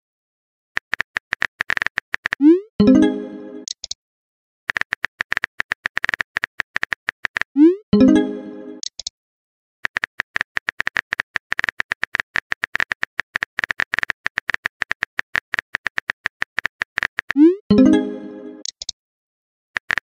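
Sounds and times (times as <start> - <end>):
rising message-sent chime: 2.8 - 3.6
message chime: 2.8 - 3.7, 8.0 - 8.8, 17.7 - 18.6
phone keyboard typing clicks: 3.6 - 4.0, 4.7 - 7.5, 8.8 - 9.1, 9.9 - 17.4, 18.6 - 19.0, 19.8 - 20.0.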